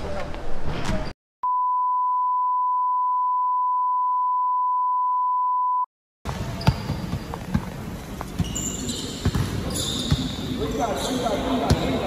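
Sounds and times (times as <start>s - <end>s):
high beep tone: 1.4s - 5.9s
basketball bouncing: 9.2s - 10.3s.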